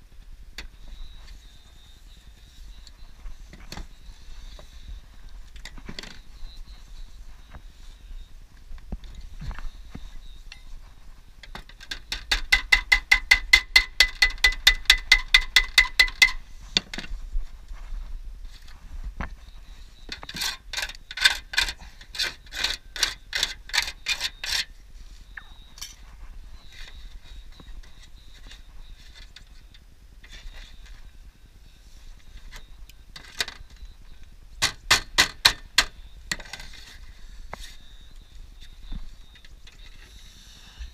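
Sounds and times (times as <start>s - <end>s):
hammer tapping metal: 12.1s - 16.4s.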